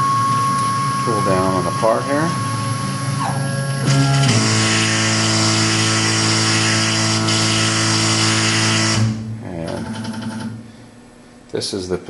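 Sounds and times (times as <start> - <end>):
stepper motor whine: 0.0 - 10.6.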